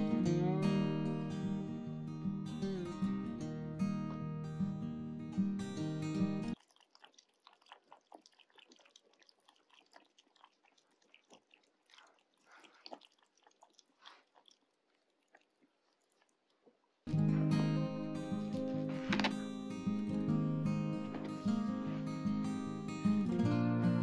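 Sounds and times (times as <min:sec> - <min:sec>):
music: 0:00.0 - 0:06.6, 0:17.1 - 0:24.0
kittens chewing and smacking: 0:06.6 - 0:17.0.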